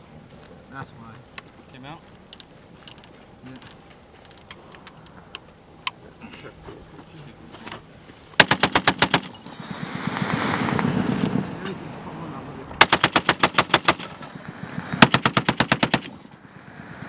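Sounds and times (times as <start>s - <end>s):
metallic handling clicks: 2.3s - 6.0s
machine gun burst: 8.4s - 11.1s, 12.8s - 14.2s, 14.8s - 16.4s
rumble: 9.2s - 12.9s, 13.8s - 17.0s.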